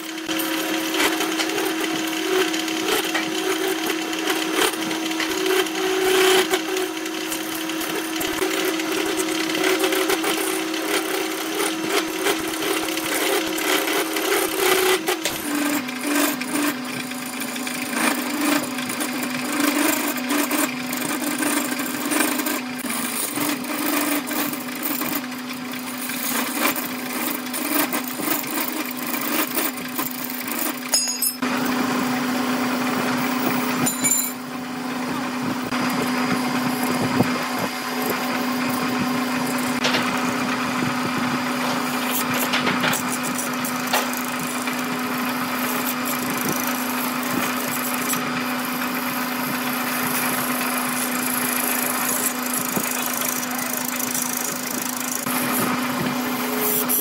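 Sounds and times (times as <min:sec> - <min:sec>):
gouge scraping spinning wood: 0:00.0 - 0:34.1, 0:34.8 - 0:57.0
wood lathe motor hum: 0:00.0 - 0:57.0.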